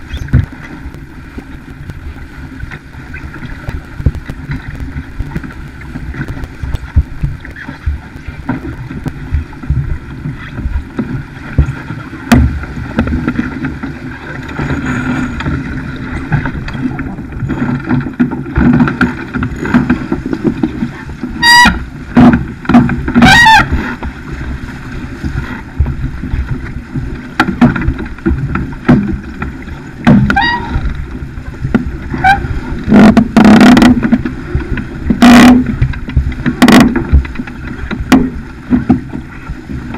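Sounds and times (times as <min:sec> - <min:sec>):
water rushing along hull: 0:00.0 - 0:39.9
wind buffeting microphone: 0:00.0 - 0:39.9.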